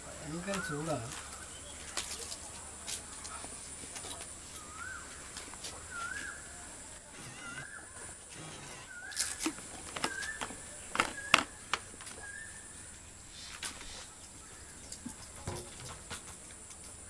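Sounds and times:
bird whistled call: 4.6s - 5.2s, 5.8s - 6.6s, 8.8s - 14.1s.

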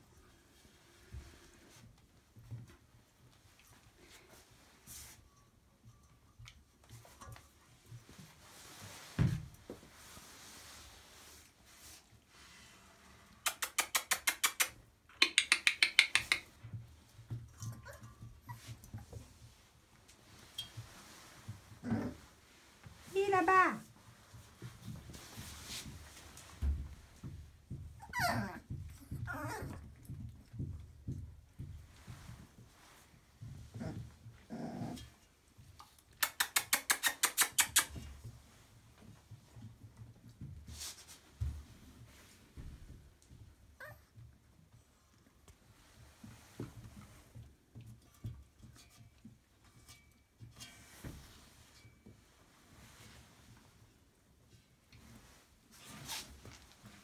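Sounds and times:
puppies scuffling in wood shavings: 6.9s - 12.7s, 17.4s - 28.8s, 31.8s - 34.4s, 40.1s - 43.1s, 50.4s - 57.0s
rapid mouth clicks: 13.4s - 16.5s, 36.2s - 37.9s
puppy growl: 21.8s - 22.3s, 33.7s - 35.1s.

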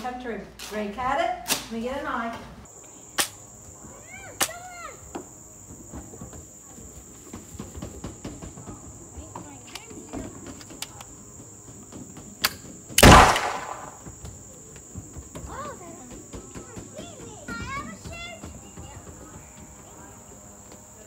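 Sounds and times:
high-pitched insect chorus: 2.7s - 21.0s
loud burst of noise: 13.0s - 14.0s.

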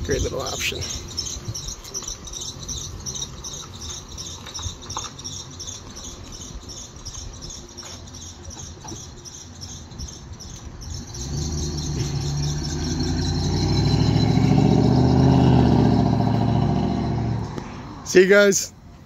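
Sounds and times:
high-pitched belt chirp: 0.5s - 15.1s
truck engine running low: 8.4s - 17.6s.

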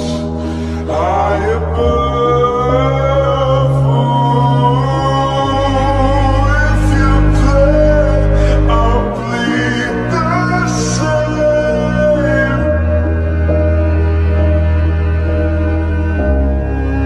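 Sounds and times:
slowed-down singing: 0.0s - 14.2s
sustained bass: 0.0s - 17.0s.

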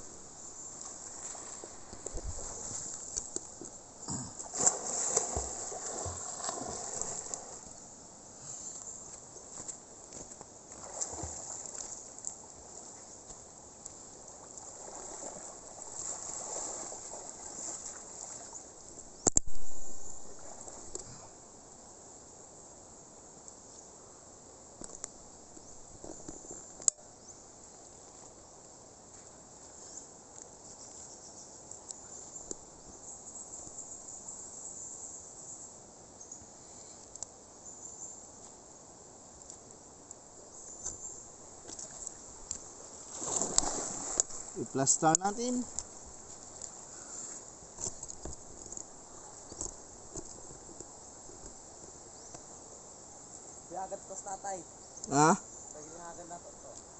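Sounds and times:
faint river water: 0.0s - 56.9s
small click: 19.2s - 19.6s
chorus of insects: 29.6s - 56.9s.

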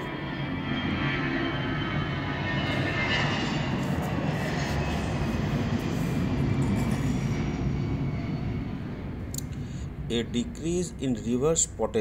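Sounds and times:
low hum: 0.0s - 12.0s
background rumble and hiss: 9.1s - 12.0s.

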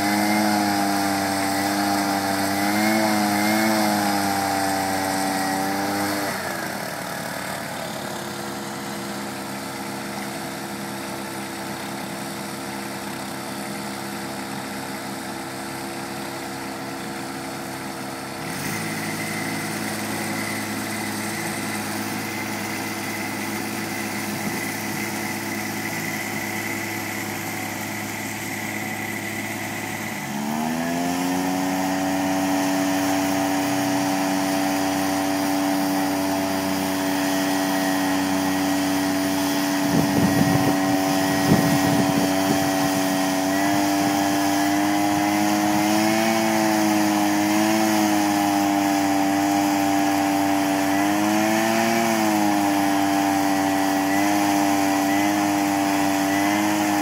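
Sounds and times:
small petrol engines running: 0.0s - 57.0s.

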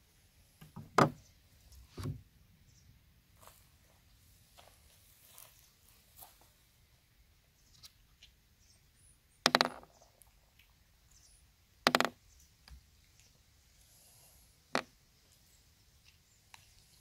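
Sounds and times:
steel balls dropping on wooden table: 9.4s - 10.0s, 11.9s - 12.2s, 14.7s - 14.9s.

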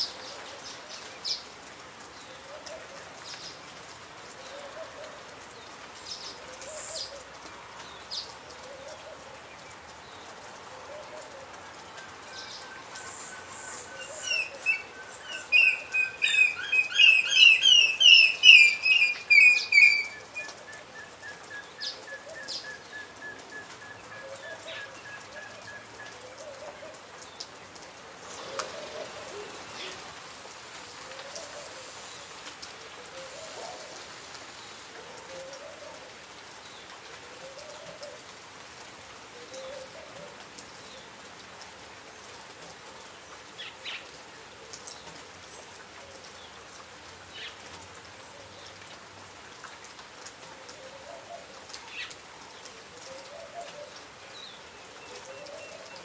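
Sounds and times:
steady rain hiss: 0.0s - 56.0s
hornbill piping whistled calls: 14.2s - 20.2s.

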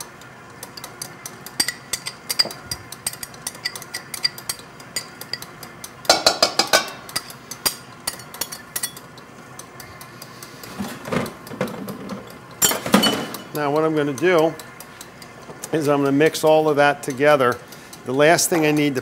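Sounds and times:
metal utensil clinking on bowl: 12.1s - 13.5s.

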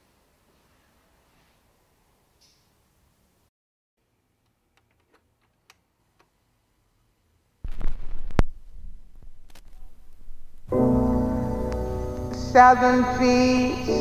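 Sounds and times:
vinyl surface crackle and pops: 7.6s - 10.8s, 11.6s - 12.4s
stylus thump: 7.7s - 10.6s
music from a record: 10.7s - 14.0s.

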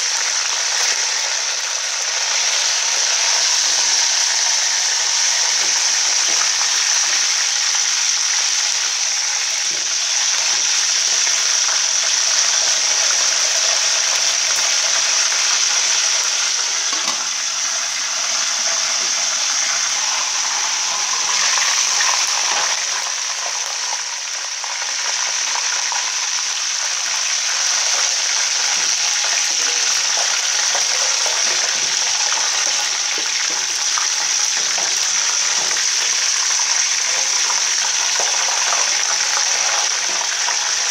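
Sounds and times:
hot oil sizzling: 0.0s - 40.9s.

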